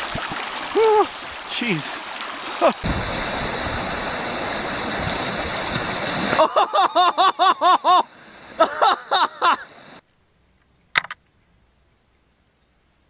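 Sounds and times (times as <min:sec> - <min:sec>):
water rushing and splashing: 0:00.0 - 0:07.1
sharp click: 0:10.9 - 0:11.2.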